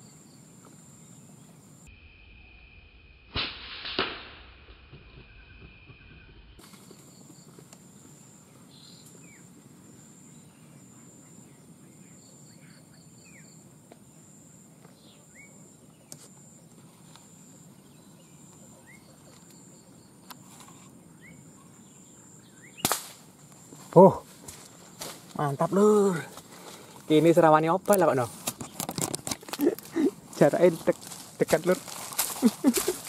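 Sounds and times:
insect whining: 0:00.2 - 0:11.6
air rifle shot: 0:03.3 - 0:04.4, 0:22.8 - 0:23.2
bird chirps: 0:05.0 - 0:16.6, 0:17.2 - 0:22.9.

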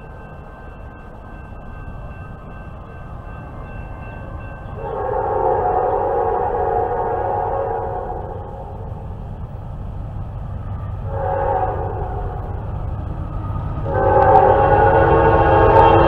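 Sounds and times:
low train rumble: 0:00.0 - 0:16.0
locomotive air horn: 0:04.8 - 0:08.7, 0:11.1 - 0:12.5, 0:13.8 - 0:16.0.

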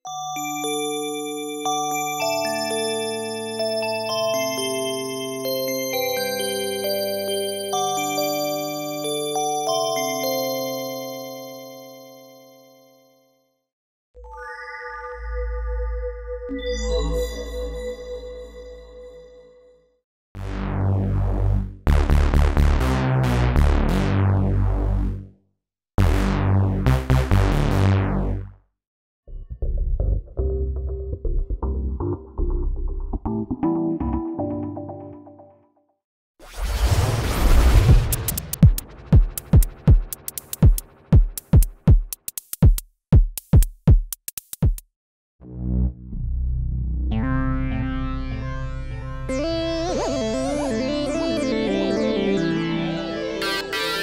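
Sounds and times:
synthesizer melody: 0:33.4 - 0:35.6, 0:47.5 - 0:54.0
synthesized kick drums: 0:37.8 - 0:44.9
hi-hat ticks: 0:38.1 - 0:44.9.

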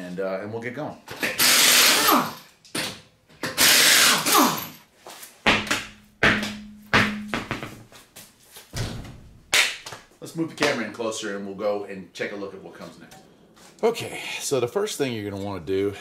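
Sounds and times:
air impact wrench: 0:01.1 - 0:02.5, 0:03.4 - 0:04.8
knocks and thumps: 0:05.5 - 0:08.0, 0:08.7 - 0:09.5.

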